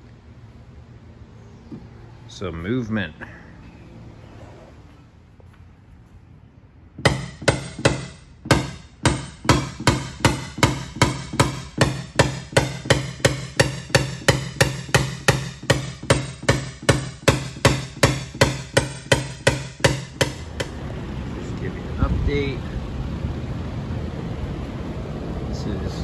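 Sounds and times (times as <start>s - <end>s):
hammer tapping metal punch: 7.0s - 20.8s.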